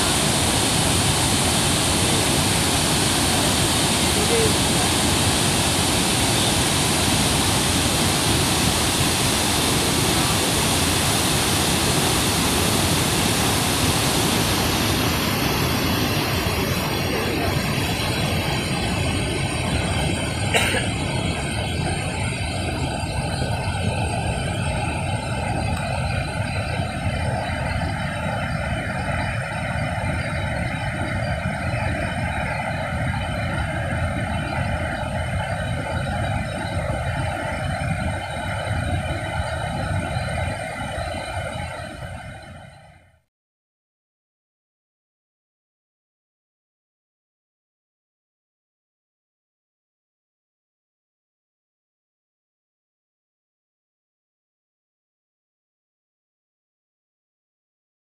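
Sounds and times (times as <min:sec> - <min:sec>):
waterfall rushing: 0:00.0 - 0:23.5.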